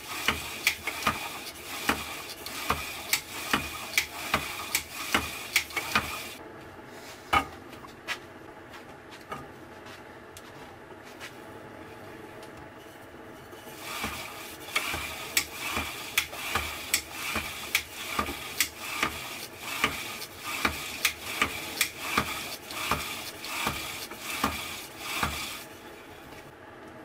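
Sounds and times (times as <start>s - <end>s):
pump drill whirring and rubbing: 0.0s - 6.4s, 13.6s - 26.5s.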